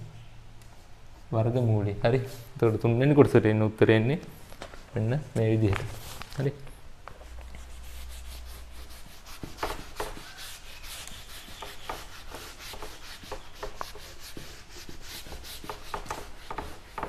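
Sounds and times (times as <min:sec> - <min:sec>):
eraser wiping whiteboard: 0:01.2 - 0:02.8, 0:07.2 - 0:17.0.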